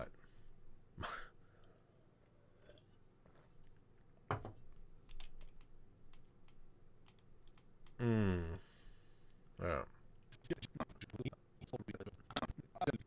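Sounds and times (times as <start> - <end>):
keyboard and mouse clicks: 5.0 - 8.0
man humming: 8.0 - 8.7.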